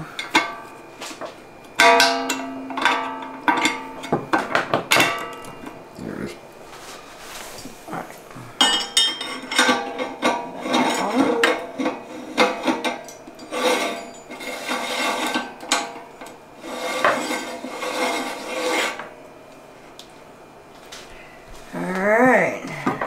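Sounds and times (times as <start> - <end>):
metal ring clinking and scraping: 1.8 - 4.2, 8.6 - 19.1.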